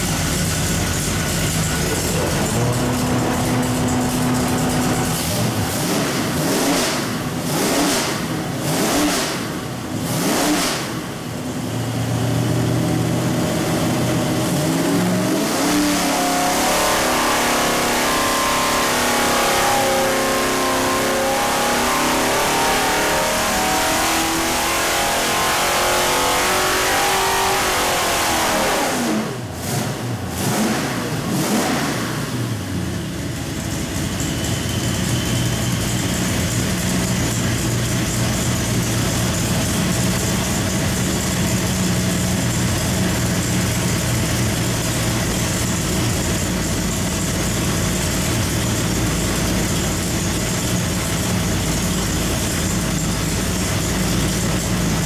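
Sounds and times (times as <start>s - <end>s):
engine revving: 1.2s - 11.3s, 12.2s - 32.9s.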